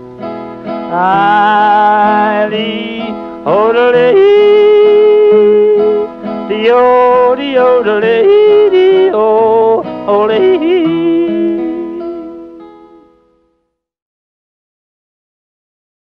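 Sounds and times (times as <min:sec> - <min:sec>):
acoustic guitar: 0:00.0 - 0:13.9
person yodeling: 0:00.9 - 0:12.5.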